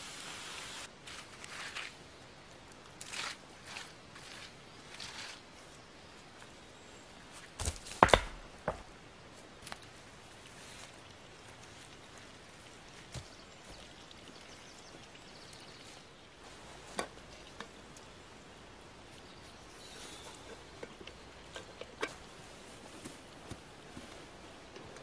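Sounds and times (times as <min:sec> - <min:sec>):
camp gear clicks and knocks: 0:20.3 - 0:25.0.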